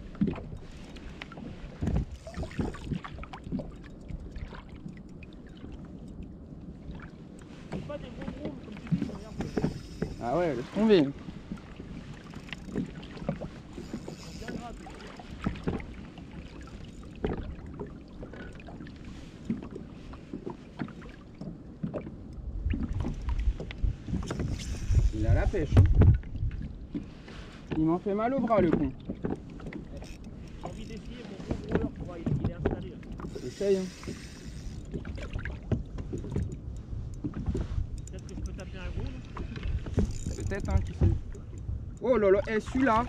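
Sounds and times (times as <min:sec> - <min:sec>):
water lapping against plastic hull: 0:00.0 - 0:43.0
low knocks on hull: 0:25.7 - 0:27.1.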